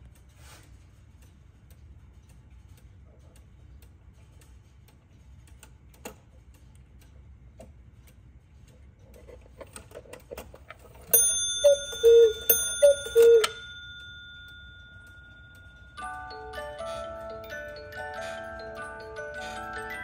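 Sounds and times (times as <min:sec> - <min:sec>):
clock ticking and clicking: 0:00.0 - 0:20.0
ringing tone: 0:11.2 - 0:20.0
two-note cuckoo call: 0:11.6 - 0:13.6.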